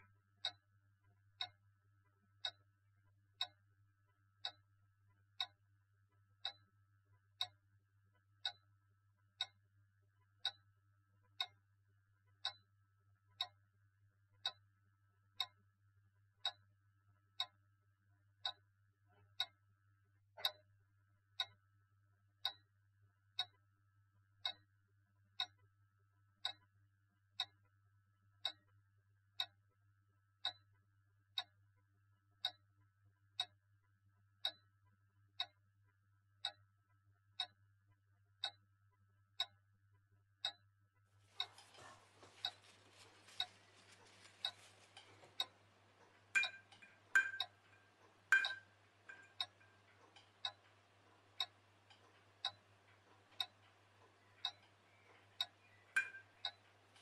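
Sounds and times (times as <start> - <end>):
clock ticking: 0.0 - 0.6, 1.4 - 1.6, 2.4 - 2.6, 3.4 - 3.6, 4.4 - 4.7, 5.4 - 5.6, 6.4 - 6.6, 8.4 - 8.6, 9.4 - 9.6, 10.3 - 10.6, 11.3 - 11.6, 12.3 - 12.7, 13.3 - 13.6, 14.4 - 14.6, 15.4 - 15.6, 16.4 - 16.6, 17.4 - 17.6, 18.4 - 18.6, 19.4 - 19.6, 20.4 - 20.6, 21.4 - 21.6, 22.4 - 22.6, 23.4 - 23.6, 24.4 - 24.7, 25.4 - 25.6, 29.4 - 29.6, 30.4 - 30.7, 31.4 - 31.6, 32.4 - 32.6, 33.4 - 33.6, 35.4 - 35.6, 36.4 - 36.6, 37.4 - 37.6, 41.3 - 57.0.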